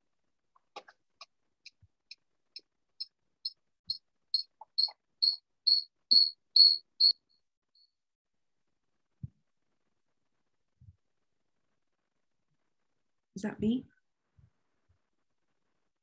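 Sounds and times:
short high electronic beeps: 4.4s - 7.2s.

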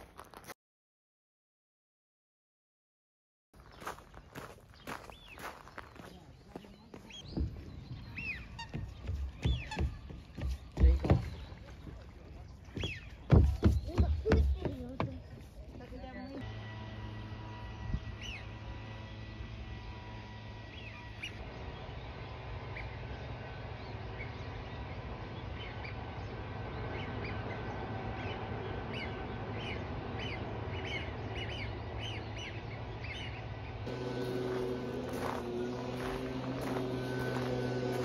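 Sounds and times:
birds whistling calls: 3.6s - 14.7s, 20.7s - 38.0s
steady low hum: 16.4s - 38.0s.

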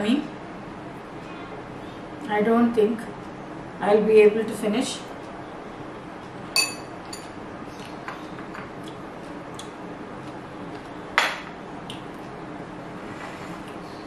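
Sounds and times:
spoon clinking glass bowl: 6.6s - 7.2s.

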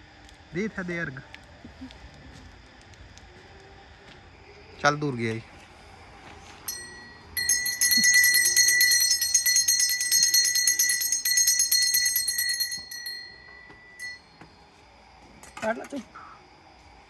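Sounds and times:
small hand bell ringing: 6.7s - 14.5s.

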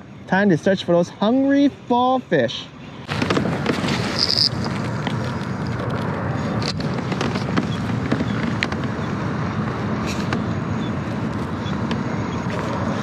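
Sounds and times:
fishing reel whirring: 4.1s - 4.7s.

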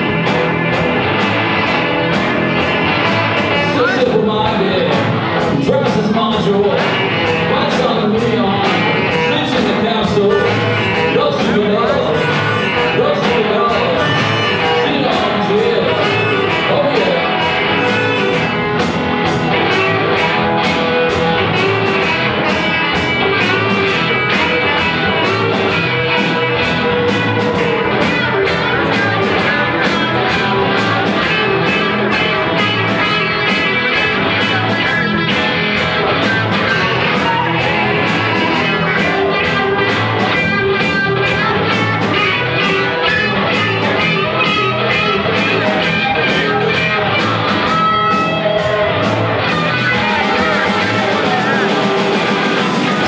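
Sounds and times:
electric guitar: 0.0s - 53.0s
live rock band: 0.0s - 53.0s
steady drum beat: 0.0s - 53.0s.

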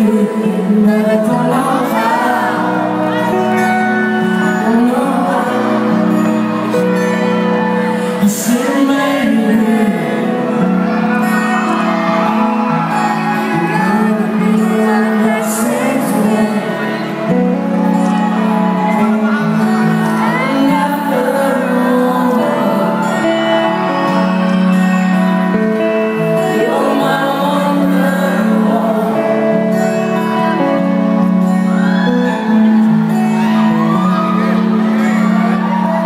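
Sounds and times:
man singing: 0.0s - 12.3s, 13.4s - 24.3s, 26.2s - 30.9s
rock band playing: 0.0s - 36.0s.

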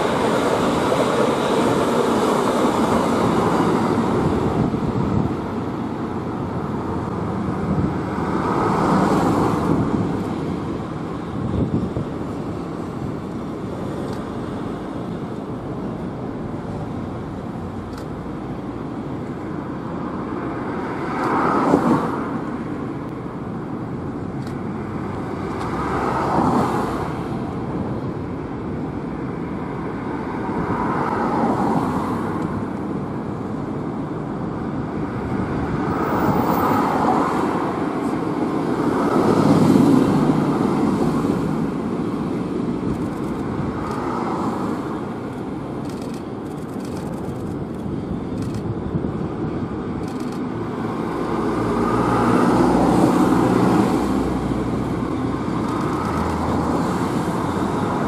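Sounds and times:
freight train running: 0.0s - 11.4s
vehicles passing: 0.0s - 58.0s.

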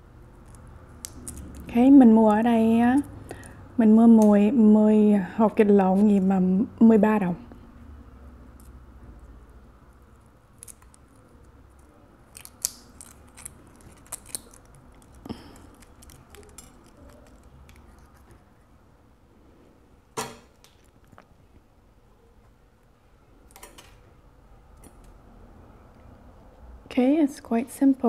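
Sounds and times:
egg shell cracking: 0.4s - 1.7s, 12.2s - 18.3s.

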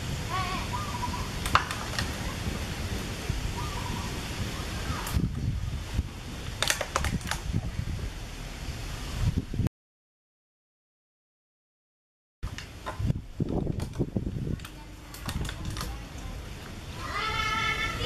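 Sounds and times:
steady low rumble: 0.0s - 9.7s
sharp clicks: 6.6s - 7.5s.

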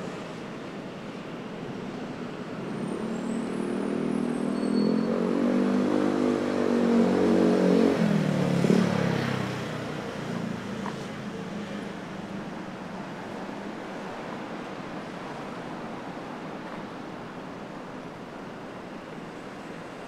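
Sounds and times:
traffic and street noise: 0.0s - 20.0s
vehicle engine passing by: 3.0s - 11.9s.

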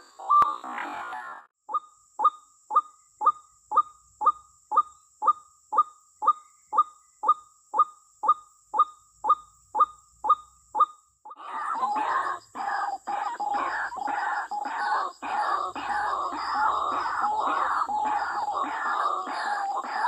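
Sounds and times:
bird calling: 0.0s - 1.4s, 11.3s - 20.0s.

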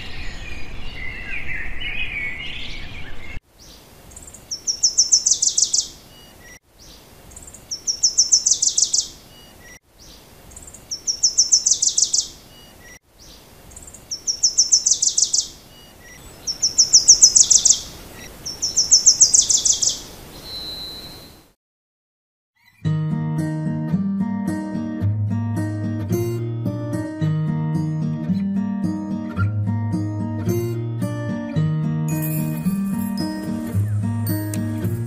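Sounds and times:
songbird singing: 0.0s - 21.6s, 32.1s - 35.0s
faint steady hiss: 3.5s - 21.6s.

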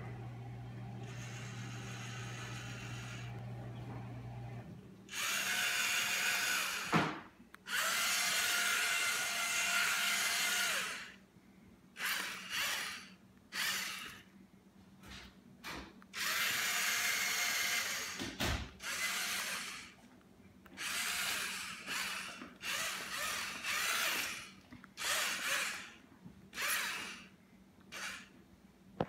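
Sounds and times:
toy robot servo motors whirring: 1.0s - 3.3s, 5.1s - 6.9s, 7.6s - 11.2s, 12.0s - 14.3s, 16.1s - 20.0s, 20.8s - 27.3s, 27.9s - 28.3s.

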